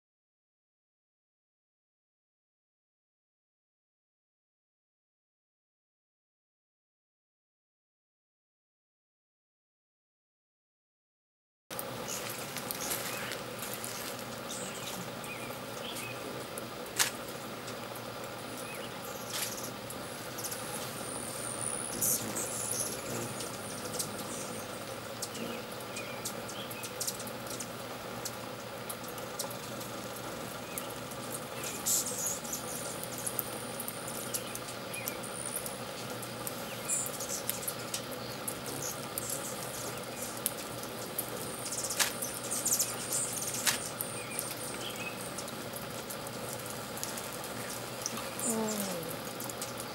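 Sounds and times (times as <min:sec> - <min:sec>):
steady background hum: 0:11.7 - 0:49.9
hummingbirds squeaky chirps: 0:12.0 - 0:49.9.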